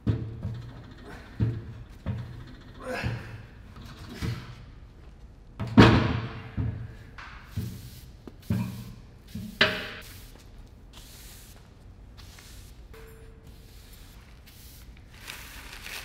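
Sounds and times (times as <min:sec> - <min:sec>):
broom sweeping concrete: 0:07.4 - 0:12.9, 0:13.5 - 0:16.0.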